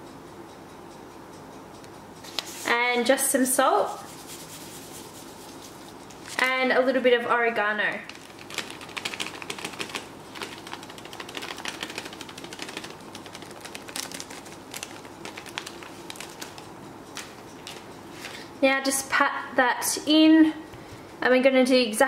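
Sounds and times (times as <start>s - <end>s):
dried herbs crumbled between fingers: 8.1s - 17.8s.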